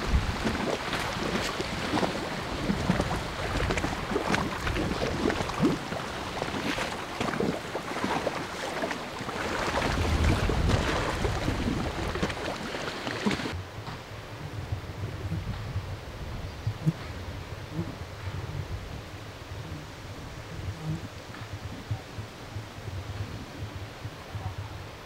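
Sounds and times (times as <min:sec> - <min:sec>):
waves splashing against seawall: 0:00.0 - 0:13.6
wind buffeting microphone: 0:00.0 - 0:25.0.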